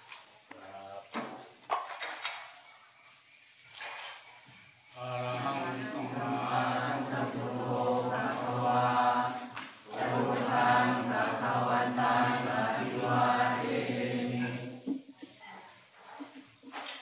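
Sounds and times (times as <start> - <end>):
low voices chanting in unison: 5.0 - 14.9.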